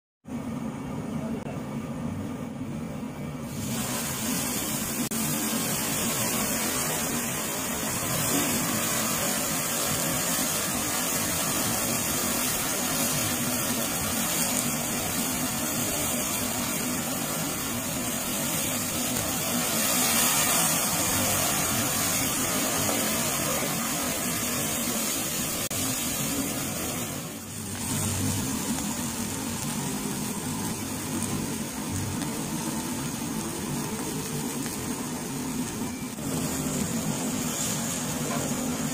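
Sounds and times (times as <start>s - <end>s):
oil sizzling on hot grill: 3.4s - 38.9s.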